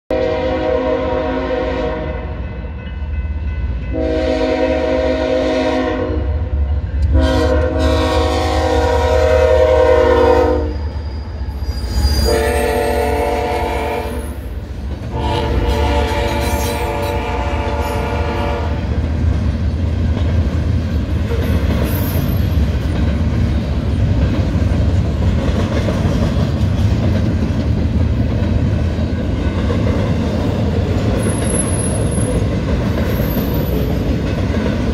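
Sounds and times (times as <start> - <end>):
locomotive air horn blasts: 0.1 - 2.4, 3.9 - 10.7, 12.2 - 14.4, 15.1 - 19.0
rail cars clattering: 0.1 - 34.9
train rumbling past: 0.1 - 34.9.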